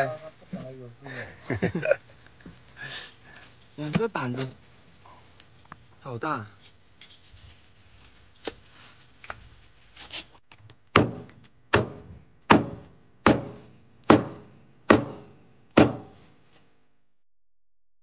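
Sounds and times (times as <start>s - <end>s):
thuds: 11.0s - 15.2s.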